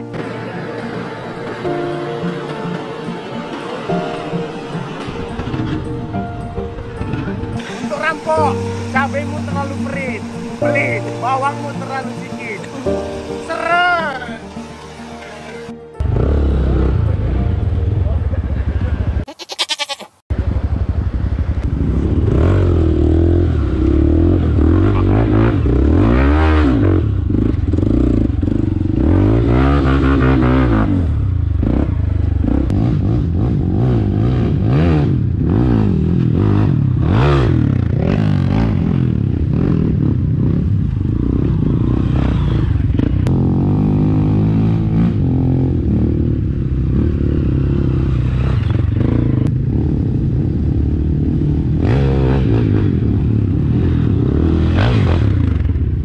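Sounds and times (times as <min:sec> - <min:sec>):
motorcycle engine revving: 0:06.9 - 0:56.0.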